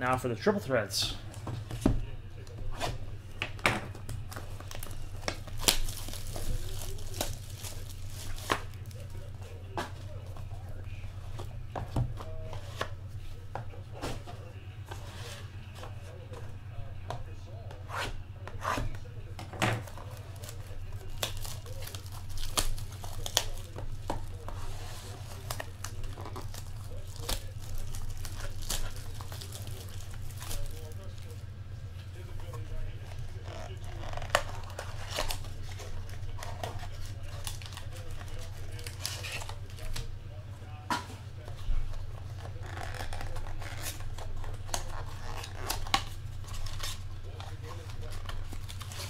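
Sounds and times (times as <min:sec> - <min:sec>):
steady low hum: 0:00.0 - 0:49.0
cellophane crackling and rustling: 0:04.1 - 0:11.5, 0:19.8 - 0:31.5, 0:32.1 - 0:40.1, 0:42.1 - 0:49.0
plastic shrink wrap crinkling: 0:04.1 - 0:11.5, 0:19.8 - 0:31.4, 0:32.2 - 0:40.1, 0:42.2 - 0:49.0.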